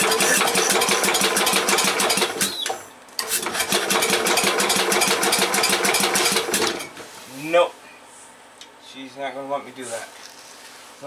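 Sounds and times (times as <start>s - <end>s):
engine cranking over: 0.0s - 6.9s.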